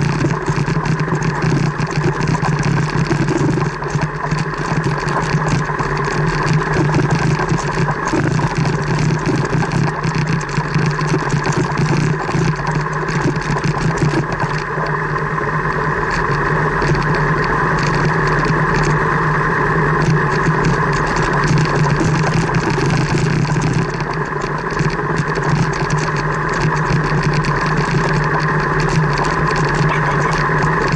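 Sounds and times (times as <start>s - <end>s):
car engine running: 20.1s - 30.9s.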